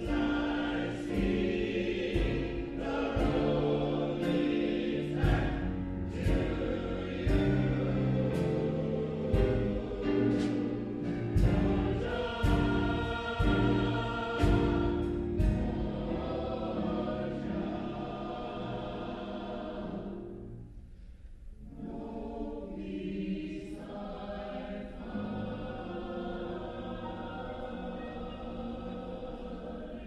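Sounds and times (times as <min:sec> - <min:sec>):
mixed choir singing: 0:00.0 - 0:20.6, 0:21.6 - 0:30.0.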